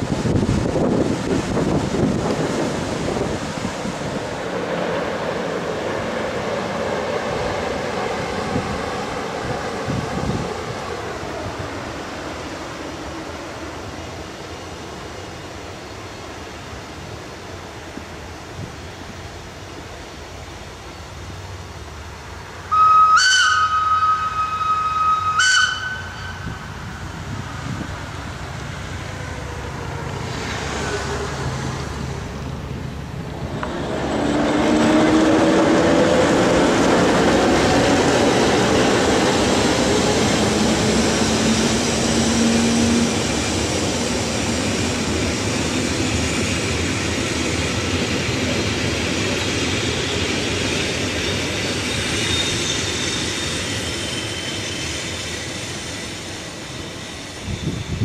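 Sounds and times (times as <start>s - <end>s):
train rolling past: 0.0s - 58.0s
train horn held tone: 22.7s - 26.8s
wheels squealing: 34.1s - 58.0s.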